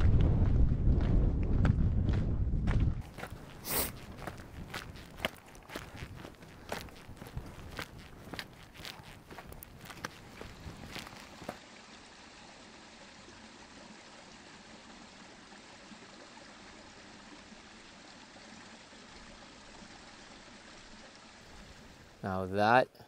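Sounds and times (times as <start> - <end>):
footsteps on rough ground: 0.0 - 11.6
stream running: 3.0 - 23.0.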